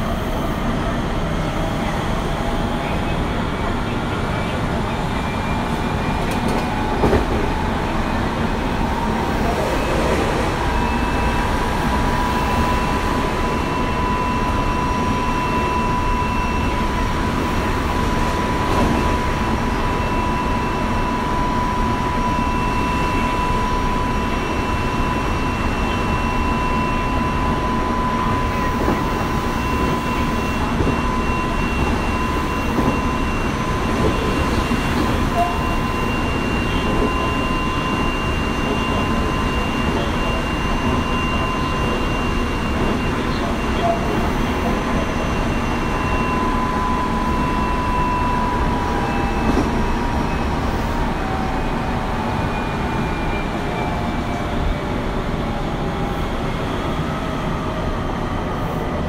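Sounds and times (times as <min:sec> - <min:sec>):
train wheels rumbling on rail: 0:00.0 - 0:59.0
steady high tone: 0:08.2 - 0:17.1.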